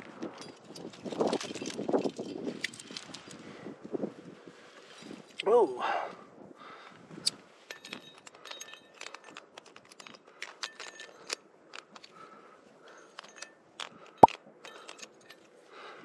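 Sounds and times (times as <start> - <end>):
metal climbing gear clinking: 0.1 - 3.4, 7.2 - 15.8.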